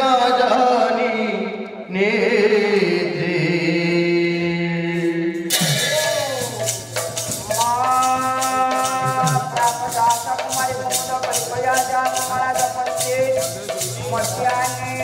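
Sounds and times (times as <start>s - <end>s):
man singing: 0.0s - 15.0s
barrel drum: 5.5s - 15.0s
hand cymbals clashing: 5.5s - 15.0s.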